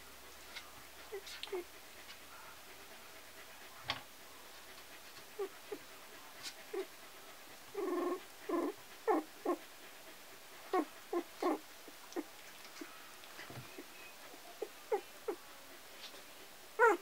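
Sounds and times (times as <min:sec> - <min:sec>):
puppy squeaking and whimpering: 0:01.1 - 0:01.7, 0:07.7 - 0:09.6, 0:10.7 - 0:15.4, 0:16.8 - 0:17.0.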